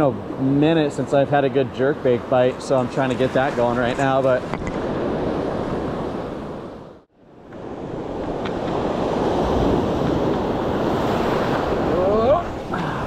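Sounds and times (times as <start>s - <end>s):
ocean surf washing on beach: 0.0s - 13.0s
wind on microphone: 3.1s - 13.0s.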